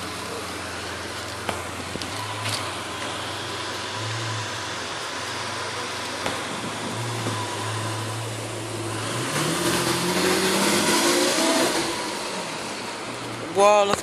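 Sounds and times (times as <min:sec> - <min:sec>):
car engine idling: 0:00.0 - 0:14.0.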